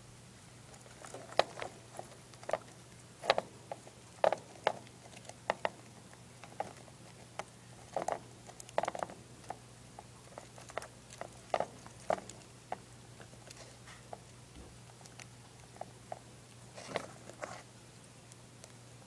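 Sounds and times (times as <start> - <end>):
low steady hum: 0.0 - 19.0
hamster gnawing: 0.4 - 19.0.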